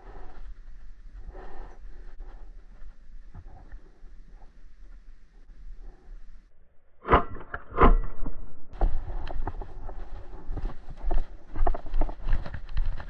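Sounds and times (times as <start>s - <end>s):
footsteps running on grass: 8.8s - 13.0s.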